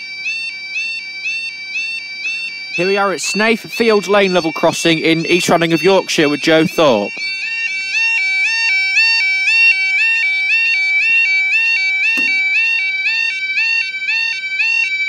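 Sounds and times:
level crossing alarm two-tone yodel: 0.0 - 15.0
sharp knock: 12.2 - 12.7.

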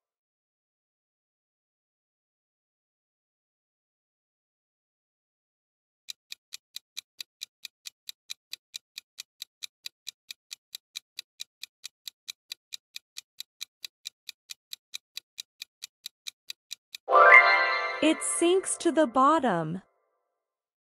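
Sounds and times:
clock ticking: 6.1 - 17.1.

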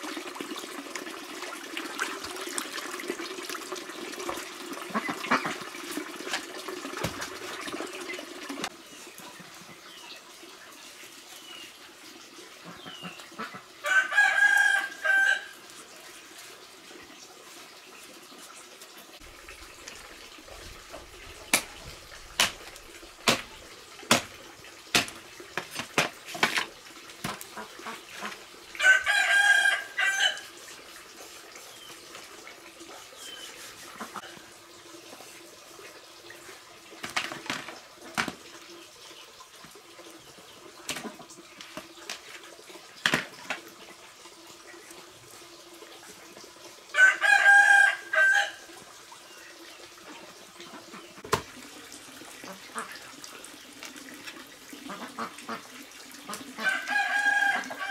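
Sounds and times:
rooster crowing: 13.8 - 15.5, 28.8 - 30.4, 46.9 - 48.6, 56.6 - 57.9
cleaver chopping on wooden block: 22.4 - 22.6, 23.2 - 23.5, 24.1 - 24.3, 25.0 - 26.6.

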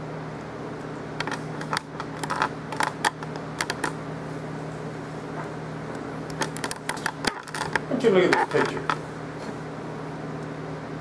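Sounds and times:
steady low hum: 0.0 - 11.0
keyboard and mouse clicking: 1.2 - 4.0, 6.3 - 9.0.

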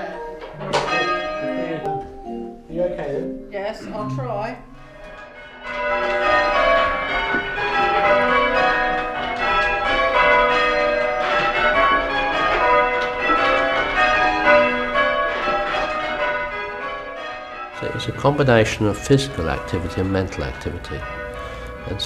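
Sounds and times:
church bells ringing: 0.0 - 22.0.

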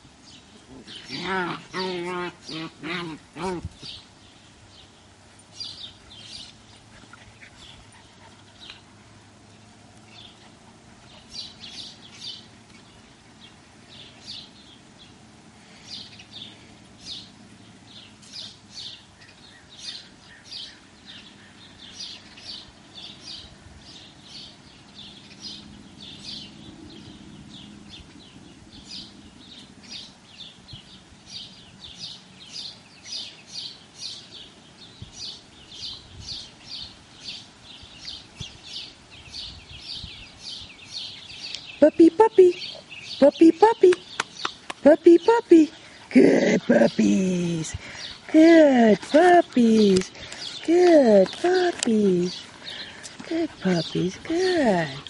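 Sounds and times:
small bird chirping: 42.5 - 44.9.

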